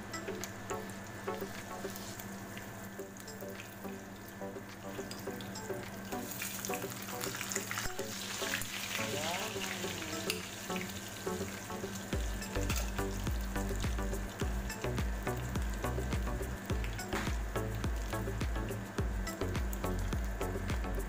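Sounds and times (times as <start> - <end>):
omelette sizzling in hot oil: 0.3 - 21.0
spatula working in pan: 4.8 - 18.3.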